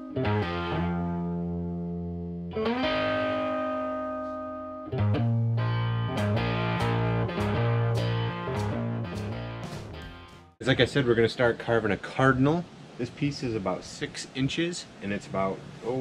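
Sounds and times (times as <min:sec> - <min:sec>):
distorted electric guitar chords: 0:00.0 - 0:10.6.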